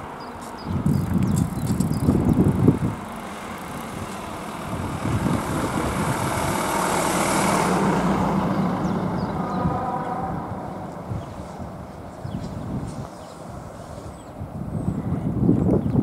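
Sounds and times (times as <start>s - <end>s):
wind on microphone: 0.0s - 16.0s
van driving past: 0.6s - 12.1s.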